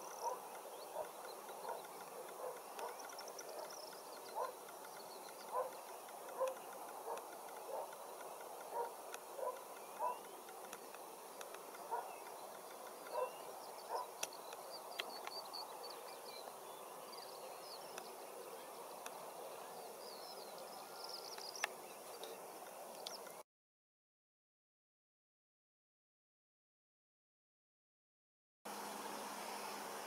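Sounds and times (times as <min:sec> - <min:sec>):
high bird chirps and twitters: 0:00.0 - 0:11.0, 0:11.7 - 0:15.7
faint background hiss: 0:00.0 - 0:23.4, 0:28.7 - 0:30.0
short low bird calls: 0:13.0 - 0:14.5.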